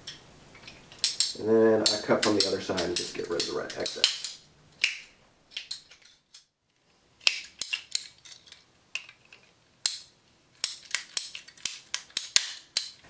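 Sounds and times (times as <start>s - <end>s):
pipe cutters snipping plastic pipe: 1.0s - 5.0s.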